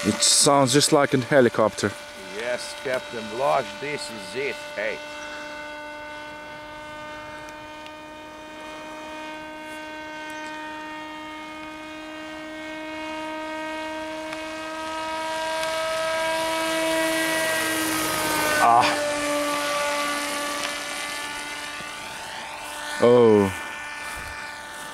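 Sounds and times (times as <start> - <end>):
model airplane propeller drone: 0.0 - 24.9.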